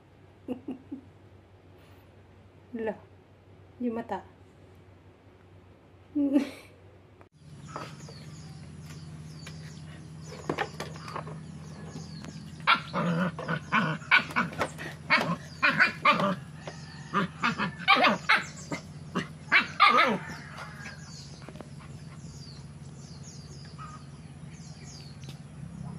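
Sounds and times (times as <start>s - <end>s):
dog barking and yipping: 12.5s - 21.1s.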